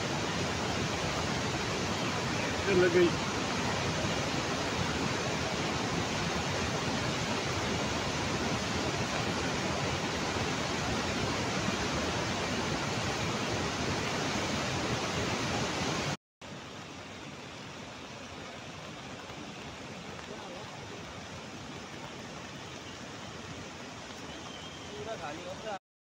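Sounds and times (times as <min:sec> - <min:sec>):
river rushing in flood: 0:00.0 - 0:25.8.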